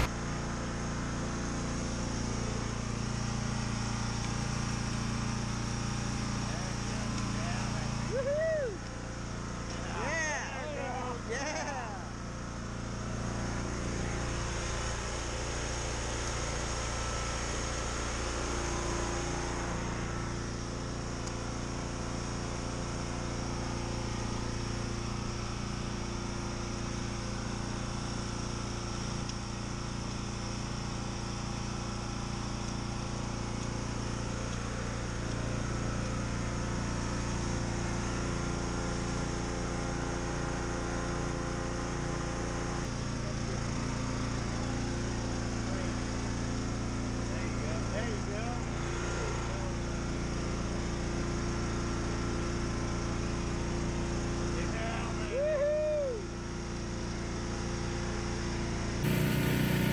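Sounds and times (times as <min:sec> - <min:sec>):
pressure washer running: 0:00.0 - 0:54.5, 0:59.0 - 0:59.9
water spraying hiss: 0:59.0 - 0:59.9.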